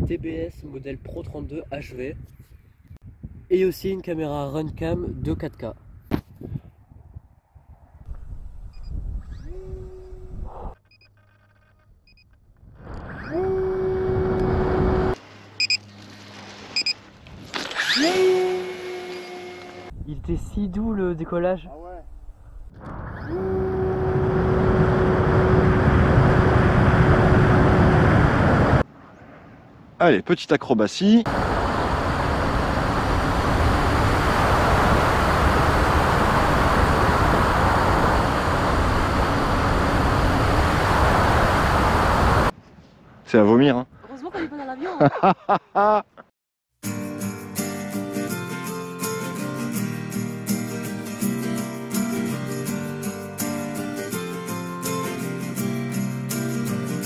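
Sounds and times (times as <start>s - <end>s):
electric motor whine: 13.4s - 15.2s, 17.9s - 19.9s, 23.3s - 28.8s, 31.3s - 42.5s
short electronic beeps: 15.6s - 15.8s, 16.8s - 17.0s
rushing air from propeller: 23.5s - 28.8s, 31.3s - 42.5s.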